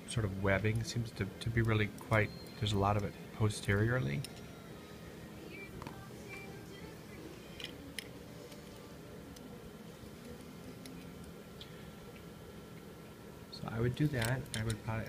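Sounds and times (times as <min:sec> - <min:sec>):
low steady hum: 0:00.0 - 0:15.0
metal instruments clicking: 0:13.9 - 0:15.0.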